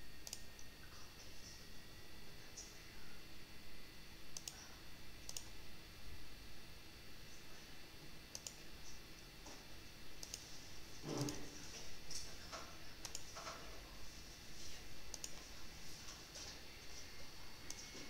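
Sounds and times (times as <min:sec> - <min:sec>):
steady low hum: 0:00.0 - 0:18.0
computer mouse clicks: 0:00.2 - 0:00.7, 0:04.3 - 0:04.7, 0:05.3 - 0:05.6, 0:08.3 - 0:08.6, 0:10.2 - 0:10.5, 0:12.6 - 0:13.6, 0:15.1 - 0:15.4.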